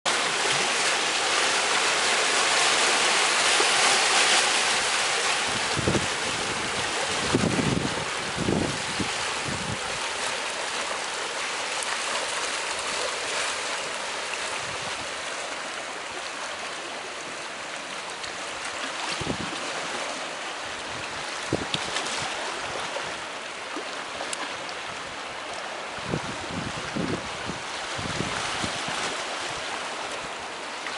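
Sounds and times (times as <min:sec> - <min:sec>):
surf washing over rocks: 0:00.1 - 0:30.9
wind thumps on microphone: 0:05.4 - 0:10.0, 0:19.1 - 0:19.6.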